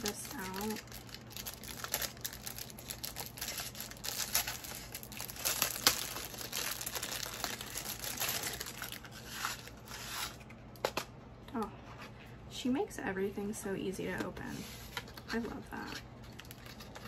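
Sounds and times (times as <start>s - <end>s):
packaging crinkling: 0.0s - 10.8s, 15.9s - 17.0s.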